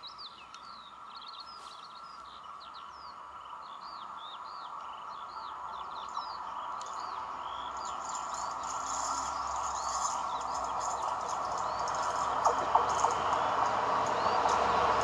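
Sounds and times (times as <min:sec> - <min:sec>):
songbirds chirping: 0:00.0 - 0:15.0
diesel locomotive engine drone: 0:03.9 - 0:15.0
sharp clicks: 0:10.0 - 0:15.0.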